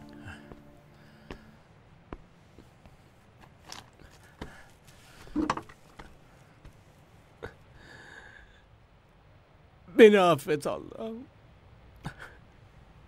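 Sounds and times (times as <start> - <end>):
man sobbing: 12.0 - 12.5.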